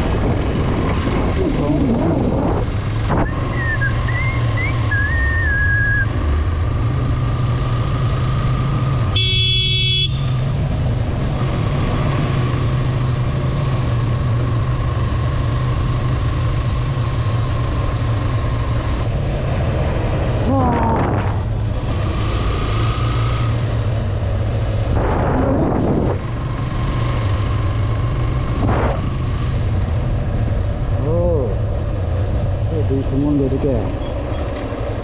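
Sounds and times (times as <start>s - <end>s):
motorcycle engine running: 0.0s - 35.0s
wind and road noise: 0.0s - 35.0s
horn blowing: 9.1s - 10.4s.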